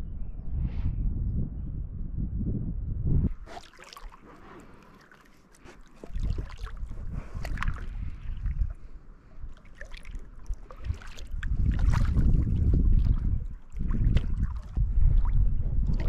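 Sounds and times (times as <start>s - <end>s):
low rumble: 0.0s - 3.4s, 10.7s - 16.0s
paddle strokes splashing: 3.4s - 16.0s.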